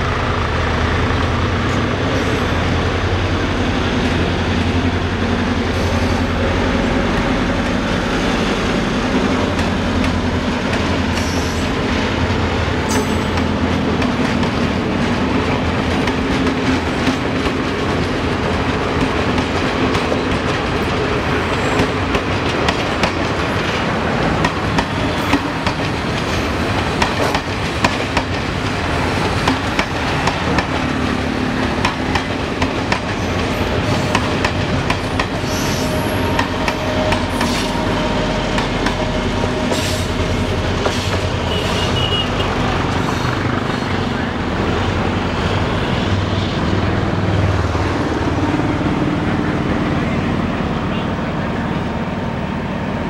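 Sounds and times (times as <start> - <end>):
train rumble: 0.0 - 53.0
train wheels clicking over rail joints: 6.6 - 41.6.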